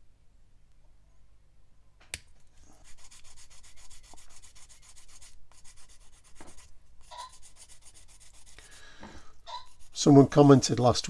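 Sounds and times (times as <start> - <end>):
sanding stick scratching plastic: 2.7 - 10.6.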